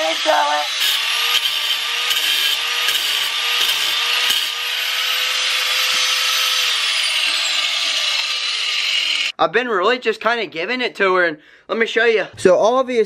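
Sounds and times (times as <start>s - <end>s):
angle grinder whine: 0.0s - 9.3s
grinder wheel cutting steel: 0.0s - 9.4s.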